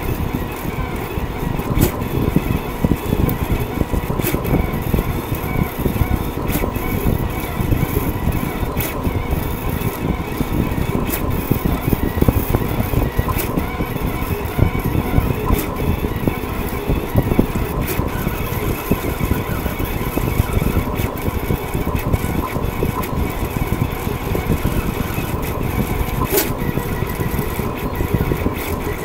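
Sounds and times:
stepper motors whirring: 0.0s - 29.0s
sharp click: 26.2s - 26.7s.

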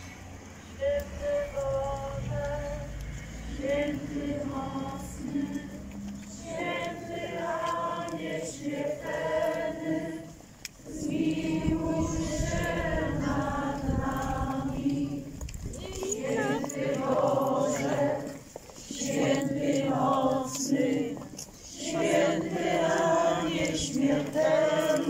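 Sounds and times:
crowd singing a hymn: 0.0s - 25.0s.

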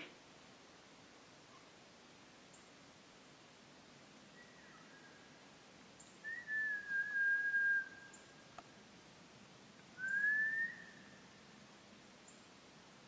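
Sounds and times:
faint click: 8.5s - 8.7s.

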